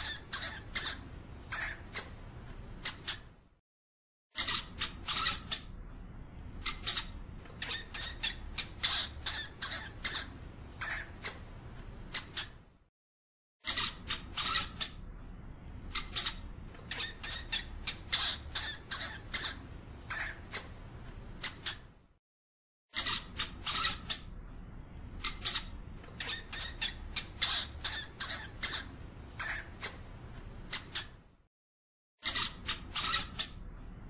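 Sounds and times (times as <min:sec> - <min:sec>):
hamster squeaking: 0:00.0 - 0:02.2, 0:02.8 - 0:03.3, 0:04.4 - 0:05.8, 0:06.6 - 0:11.5, 0:12.1 - 0:12.6, 0:13.6 - 0:15.1, 0:15.9 - 0:20.8, 0:21.4 - 0:21.9, 0:22.9 - 0:24.4, 0:25.2 - 0:30.1, 0:30.7 - 0:31.2, 0:32.2 - 0:33.6.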